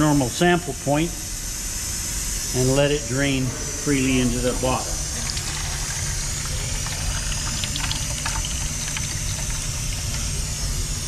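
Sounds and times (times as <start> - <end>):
low machinery hum: 0.0 - 11.0
liquid draining into a bucket: 5.0 - 10.3
small drips and splashes: 5.2 - 10.2.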